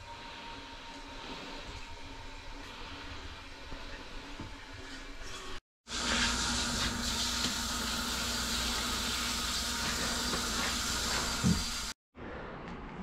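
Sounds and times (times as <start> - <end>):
shower spraying on tiled floor: 4.9 - 12.0.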